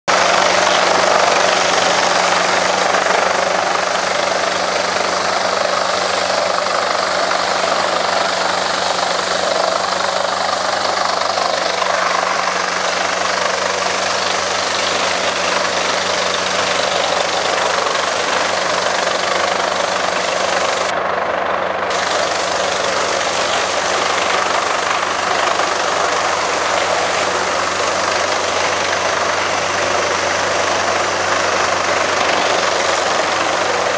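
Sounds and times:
wood chips being chipped: 0.1s - 20.9s, 21.9s - 33.9s
wood chipper engine hum: 0.1s - 33.9s.

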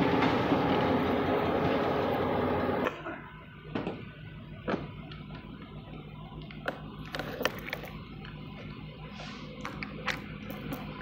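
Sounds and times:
distant diesel locomotive hum: 0.0s - 7.0s.

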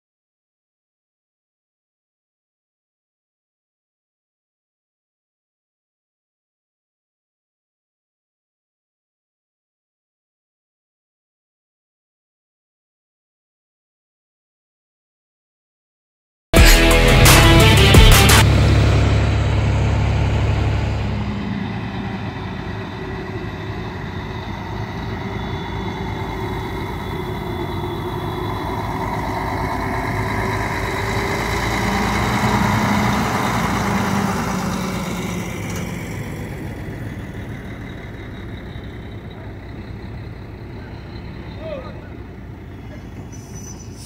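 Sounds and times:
diesel truck engine running: 16.6s - 44.0s.

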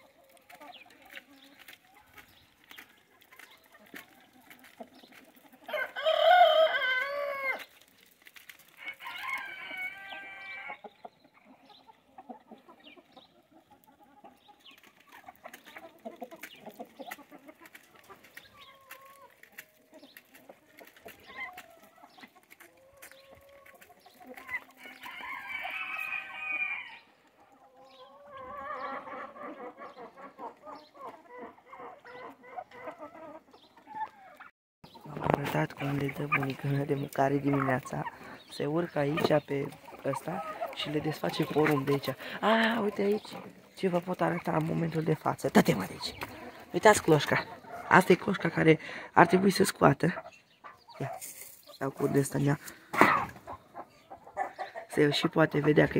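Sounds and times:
chickens clucking: 0.0s - 55.9s
rooster crowing: 5.7s - 7.6s, 8.8s - 10.7s, 24.8s - 27.1s.

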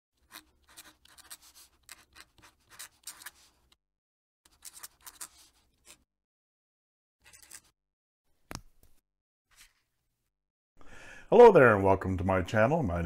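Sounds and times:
pen nib scratching paper: 0.2s - 3.7s, 4.5s - 6.0s.

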